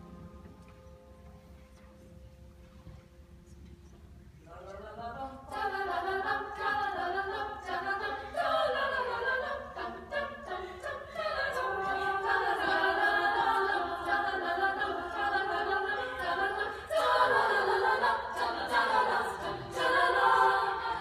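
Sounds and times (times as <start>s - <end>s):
women's choir singing in harmony: 4.5s - 21.0s.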